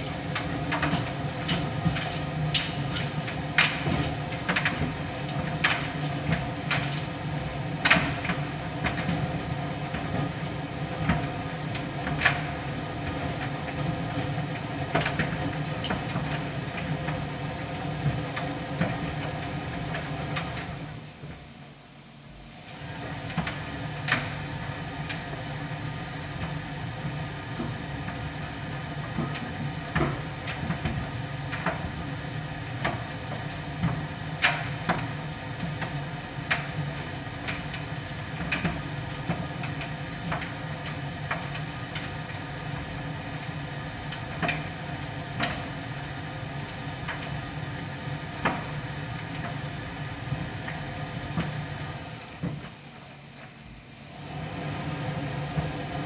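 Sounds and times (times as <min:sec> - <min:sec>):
tumble dryer motor hum: 0:00.0 - 0:56.0.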